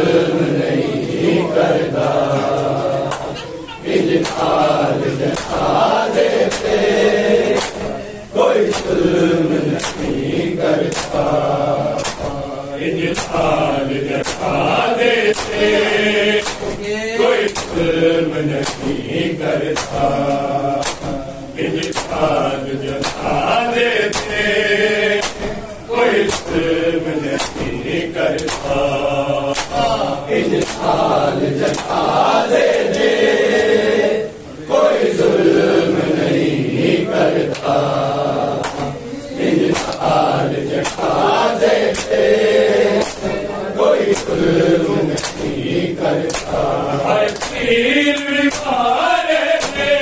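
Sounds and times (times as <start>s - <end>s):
men chanting a lament: 0.0s - 50.0s
hands slapping bare chests: 4.1s - 5.8s, 6.4s - 6.8s, 7.4s - 8.0s, 8.6s - 10.2s, 10.8s - 17.9s, 18.5s - 21.2s, 21.8s - 23.4s, 24.1s - 24.4s, 25.2s - 33.1s, 38.6s - 39.0s, 39.6s - 43.4s, 44.0s - 48.8s, 49.6s - 50.0s.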